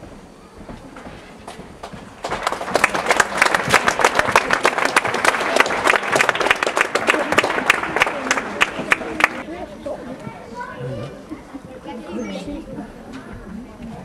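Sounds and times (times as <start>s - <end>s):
spectators applauding: 1.8s - 9.5s.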